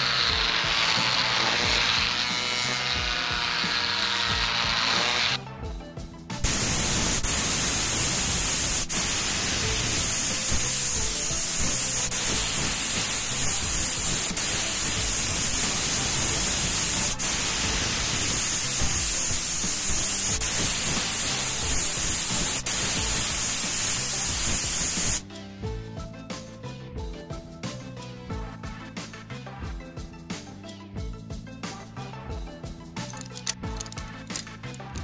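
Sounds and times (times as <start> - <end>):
spray paint can hissing: 0.0 - 5.4, 6.4 - 25.2, 33.1 - 35.0
background music: 0.0 - 35.0.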